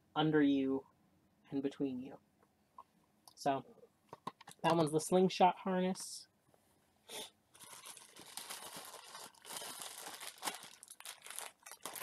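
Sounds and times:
plastic packaging crinkling: 7.5s - 12.0s
plastic rustle: 7.5s - 12.0s.

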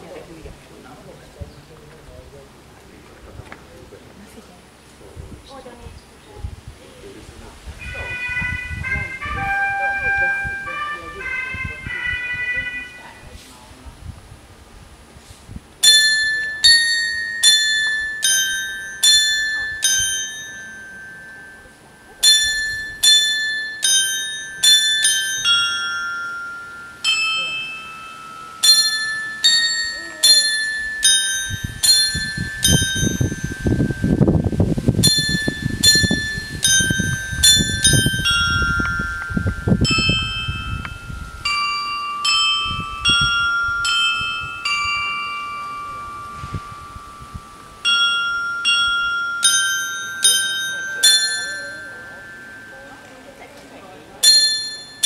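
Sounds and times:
clock chime of small bells: 15.8s - 55.0s.

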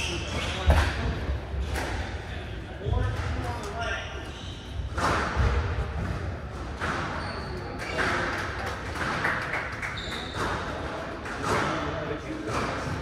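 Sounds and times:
faint indistinct voices: 0.0s - 13.0s
short high squeaks: 10.0s - 10.6s.

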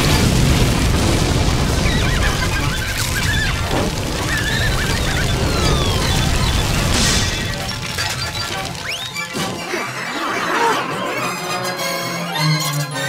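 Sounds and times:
low rumble of flames: 0.0s - 9.4s
falling whistles: 1.8s - 10.4s
cartoon music: 7.6s - 13.0s.

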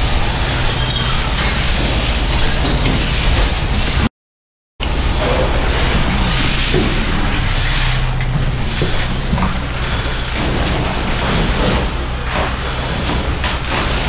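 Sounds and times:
engine low drone: 0.0s - 4.1s, 4.8s - 14.0s
loud steady hiss: 4.8s - 14.0s.

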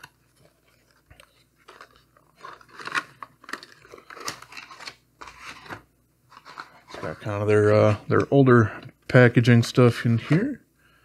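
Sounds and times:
packing material rustling: 0.0s - 8.3s.

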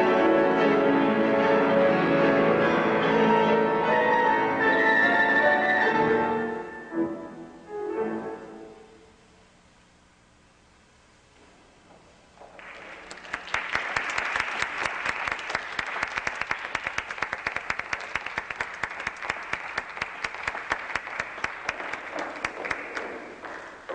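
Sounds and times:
audience applause: 12.4s - 23.9s.

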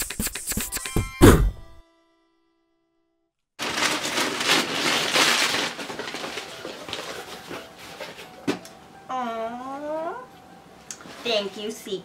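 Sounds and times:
gift-wrap paper crackling and tearing: 3.6s - 8.2s.

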